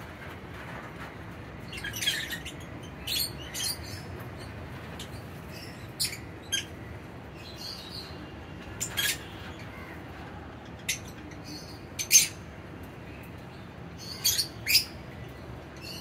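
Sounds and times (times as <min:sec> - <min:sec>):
low steady background noise: 0:00.0 - 0:16.0
lovebirds chirping: 0:01.6 - 0:16.0.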